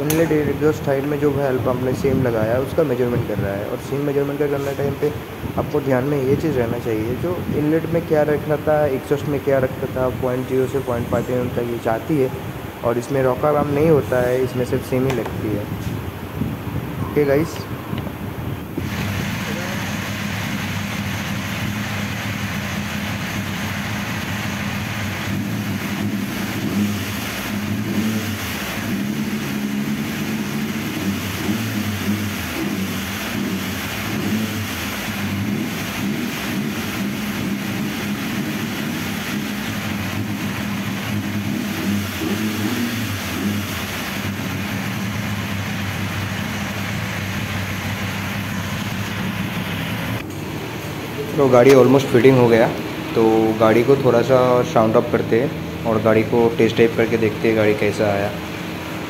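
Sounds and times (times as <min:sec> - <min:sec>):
motorcycle engine running and revving: 0:18.8 - 0:51.3.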